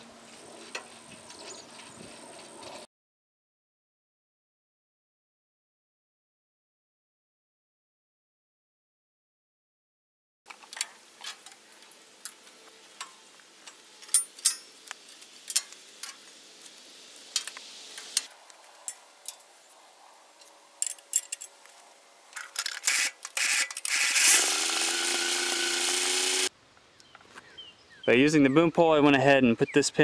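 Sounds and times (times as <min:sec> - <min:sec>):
hand tools clicking on metal: 0:12.2 - 0:14.7
steady mechanical noise: 0:22.3 - 0:26.5.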